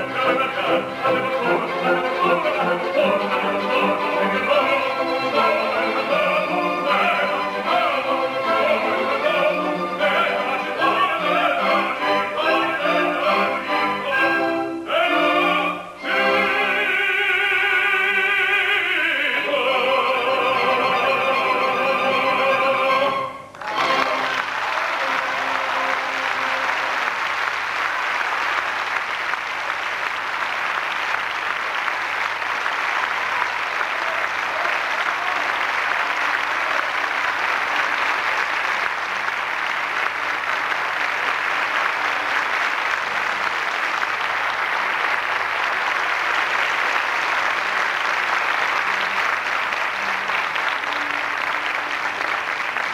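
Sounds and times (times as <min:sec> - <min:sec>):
audience applauding: 0:23.4 - 0:52.9.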